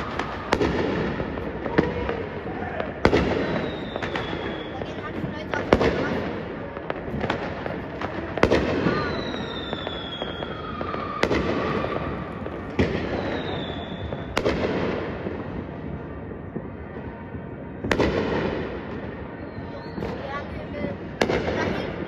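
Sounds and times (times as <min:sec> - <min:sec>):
falling firework whistle: 0:00.0 - 0:05.1, 0:08.4 - 0:14.6, 0:19.1 - 0:21.4
fireworks bangs: 0:00.0 - 0:22.0
noisy fireworks wash: 0:00.0 - 0:22.0.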